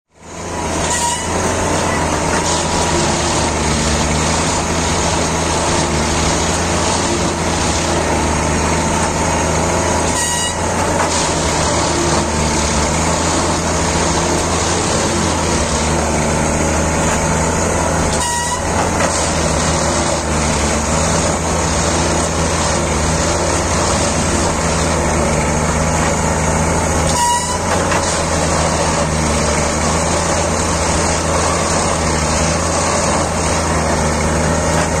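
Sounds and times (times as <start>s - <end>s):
machine engine and hydraulics: 0.1s - 35.0s
brief horn toot: 0.8s - 2.1s, 10.1s - 10.8s, 18.1s - 18.8s, 27.1s - 27.9s.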